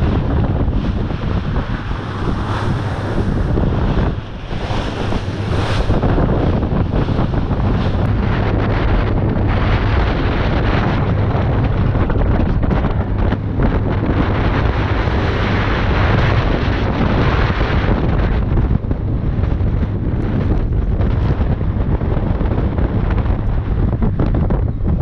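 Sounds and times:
boat engine humming: 0.0s - 16.9s
water rushing past hull: 0.0s - 18.4s
wind buffeting microphone: 0.0s - 25.0s.

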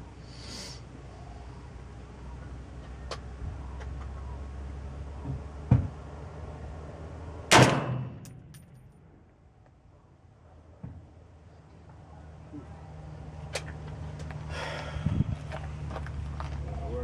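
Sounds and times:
rifle shot: 7.5s - 8.5s.

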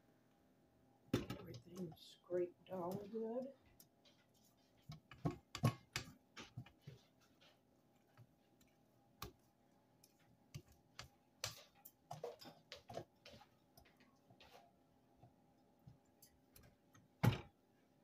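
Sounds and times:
mixer bowl clicking and knocking: 4.9s - 6.8s.

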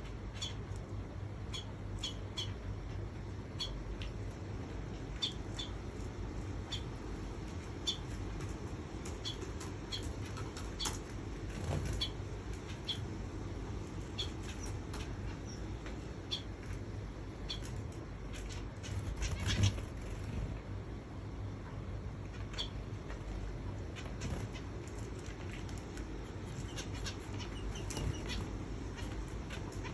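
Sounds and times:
finches chirping: 0.0s - 20.6s, 22.2s - 29.9s.

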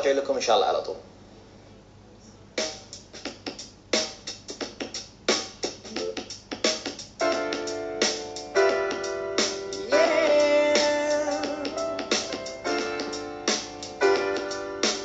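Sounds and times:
instrumental filler music: 5.3s - 15.0s.

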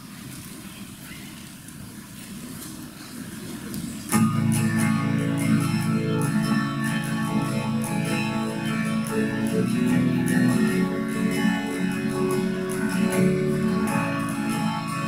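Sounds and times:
acoustic guitar strumming: 4.1s - 15.0s.

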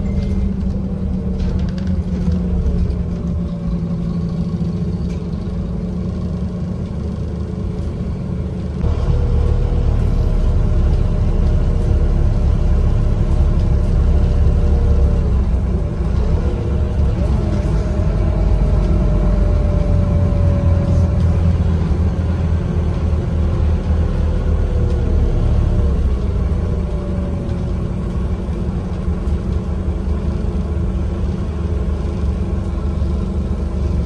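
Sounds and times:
bus diesel engine: 0.0s - 34.0s
road noise: 0.0s - 34.0s.

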